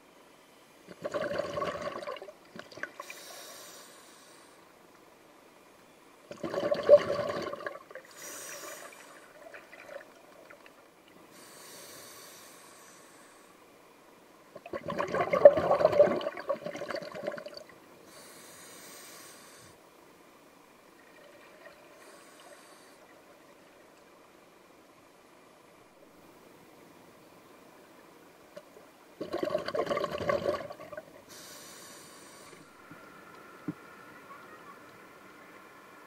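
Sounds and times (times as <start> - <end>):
underwater bubbling exhalations: 0.9 - 3.0, 6.3 - 8.0, 14.6 - 17.6, 29.2 - 31.1
regulator inhalation hiss: 3.0 - 4.7, 8.0 - 9.4, 11.3 - 13.6, 18.0 - 19.8, 22.0 - 23.1, 31.3 - 32.8.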